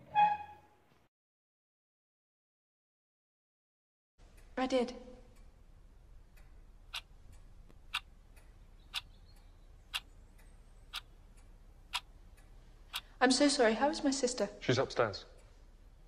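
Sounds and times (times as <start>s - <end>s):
clock ticking: 4.2s - 13.2s.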